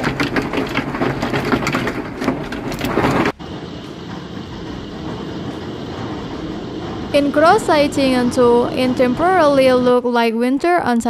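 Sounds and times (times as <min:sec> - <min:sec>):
hailstones pelting down: 0:00.0 - 0:03.4.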